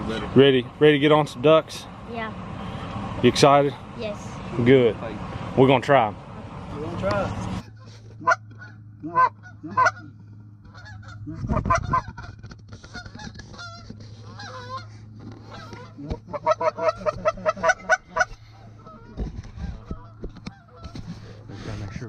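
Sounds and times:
geese honking: 7.5 - 22.0.

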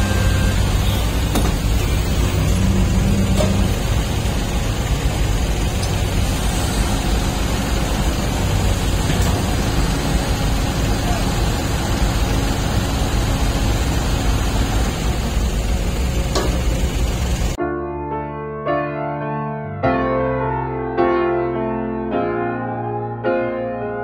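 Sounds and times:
excavator diesel engine and hydraulics: 0.0 - 17.6.

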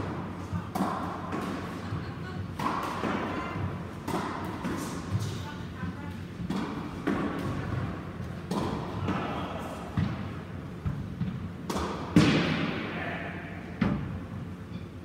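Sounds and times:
squash ball hits and thuds: 6.4 - 12.9.

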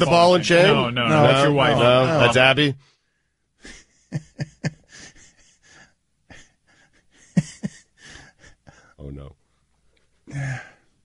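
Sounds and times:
person laughing: 3.6 - 8.8.

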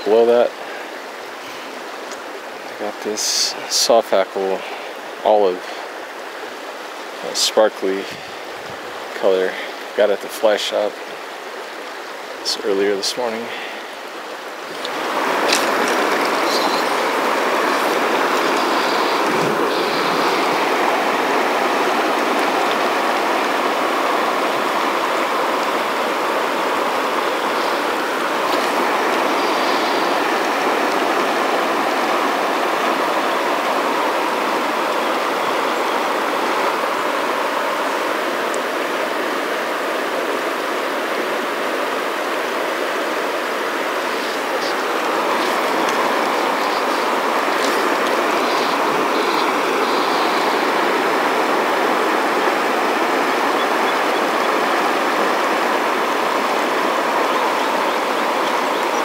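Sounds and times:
river rushing over riffle: 0.0 - 59.0.

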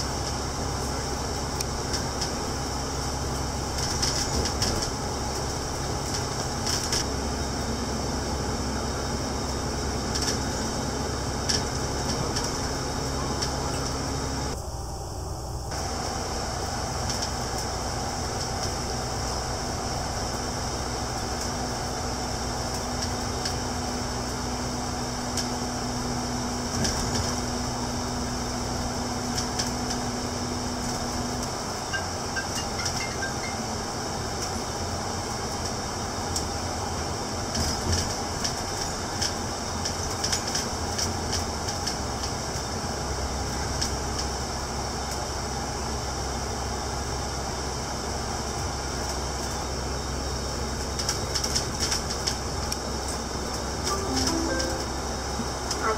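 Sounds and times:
steady low hum: 0.0 - 29.2
road noise: 0.0 - 44.6
bus engine drone: 0.0 - 55.9.

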